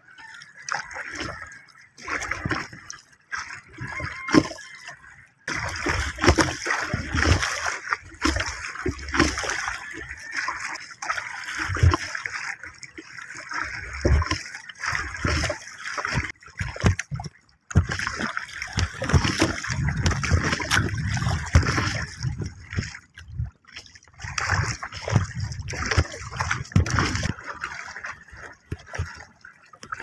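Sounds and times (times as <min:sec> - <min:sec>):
paddle strokes splashing: 0:00.0 - 0:30.0
water sloshing against hull: 0:00.0 - 0:30.0.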